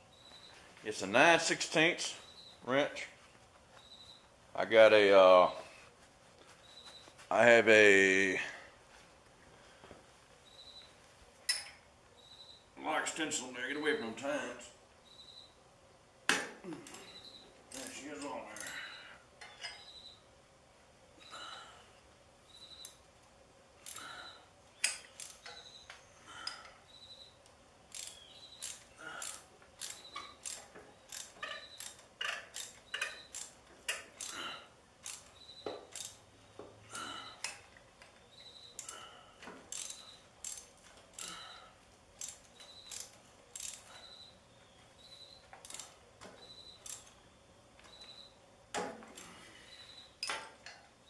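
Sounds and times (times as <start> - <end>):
socket ratchet clicking: 24.8 - 25.6, 27.9 - 34.4, 35.0 - 36.2, 39.7 - 41.3, 42.2 - 43.9, 45.6 - 46.0, 46.8 - 47.1.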